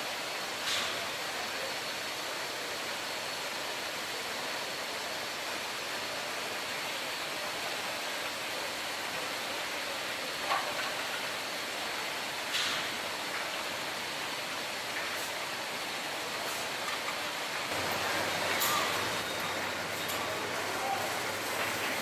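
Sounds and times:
machinery hiss: 0:11.3 - 0:22.0.

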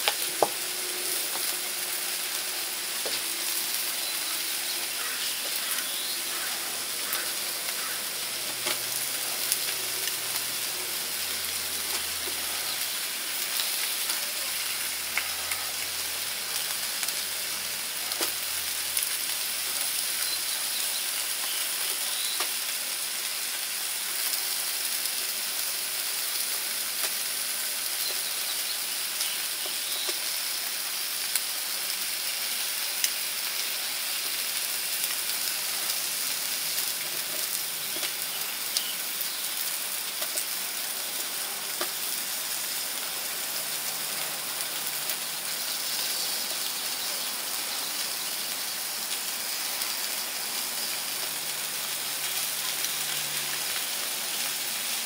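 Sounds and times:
sharp pops and crackles: 0:00.0 - 0:00.7, 0:08.4 - 0:08.9, 0:18.0 - 0:20.1, 0:35.0 - 0:38.9, 0:40.1 - 0:40.5, 0:41.7 - 0:42.1
meat sizzling on a grill: 0:00.0 - 0:55.0.

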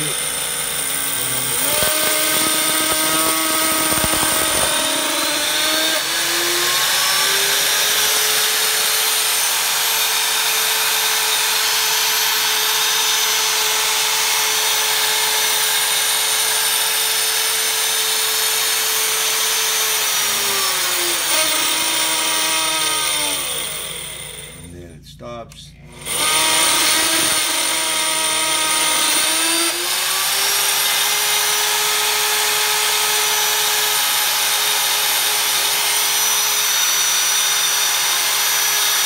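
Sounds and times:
homogenizer motor whine: 0:00.0 - 0:16.6, 0:25.8 - 0:30.8.

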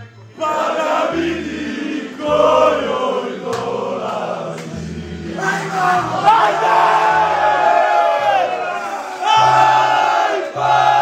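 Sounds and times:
men chanting and singing: 0:00.2 - 0:11.0
music with repeating bass note: 0:00.5 - 0:07.6.

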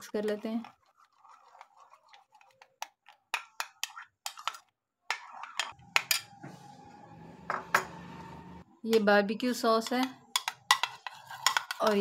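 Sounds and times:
metal spoon stirring in bowl: 0:00.0 - 0:06.3, 0:09.8 - 0:12.0
spoon scraping bowl: 0:00.0 - 0:06.4, 0:09.8 - 0:12.0.

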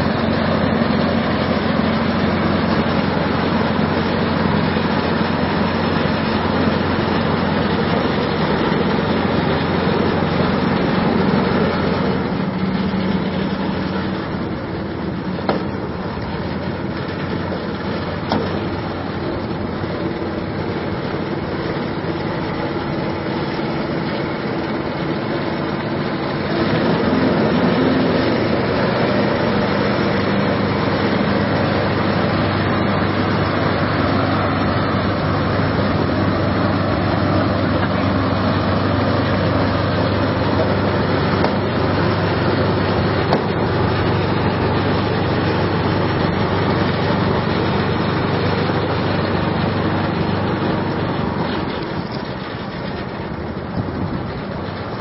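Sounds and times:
small petrol engine running: 0:00.0 - 0:55.0
water churning and splashing: 0:00.0 - 0:55.0.

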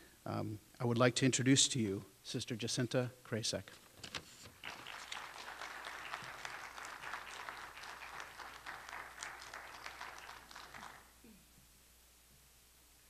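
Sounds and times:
audience applauding: 0:04.6 - 0:11.2.

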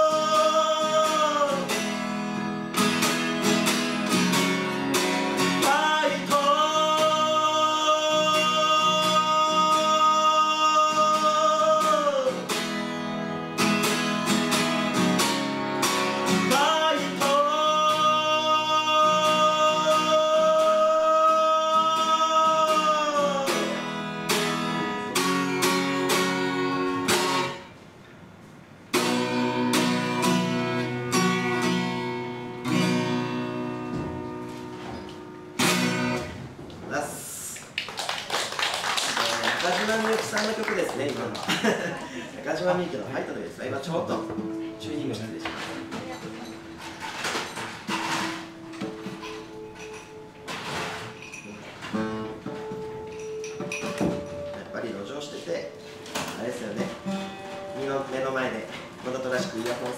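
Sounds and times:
man singing long notes: 0:00.0 - 0:02.1, 0:05.5 - 0:12.6, 0:16.3 - 0:24.2
acoustic guitar strumming: 0:00.0 - 0:37.4, 0:39.4 - 0:59.9.

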